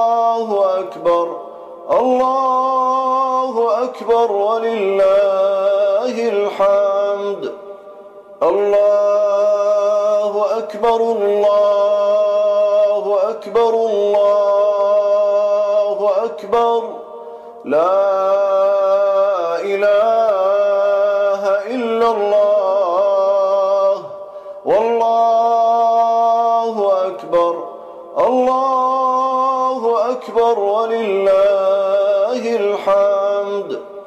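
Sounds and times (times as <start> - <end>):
man chanting melodically: 0.0 - 34.0.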